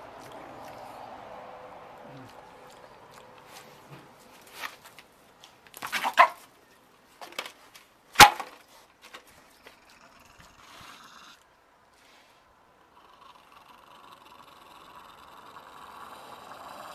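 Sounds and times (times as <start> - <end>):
animals snapping and scraping at bowl: 0.0 - 10.9.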